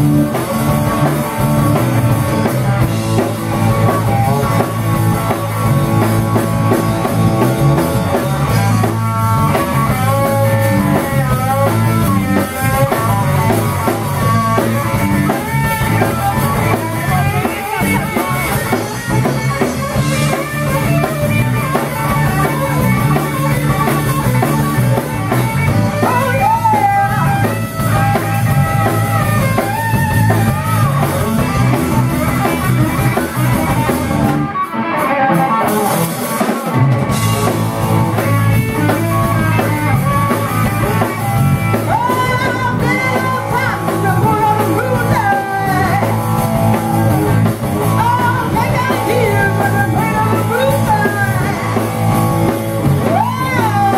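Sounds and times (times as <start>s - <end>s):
drum kit: 0.0s - 53.9s
electric bass: 0.0s - 53.9s
electric guitar: 0.0s - 53.9s
woman singing: 41.9s - 46.1s, 48.0s - 51.6s, 53.0s - 53.9s.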